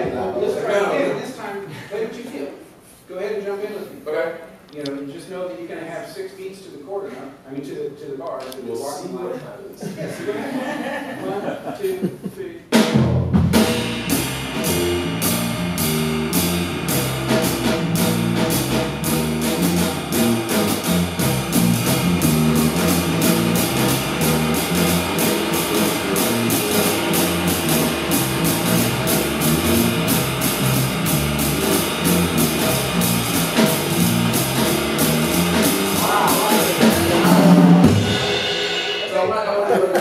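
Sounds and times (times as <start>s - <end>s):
drum kit jazz cymbals: 12.7s - 39.5s
electric bass walking line: 13.5s - 38.5s.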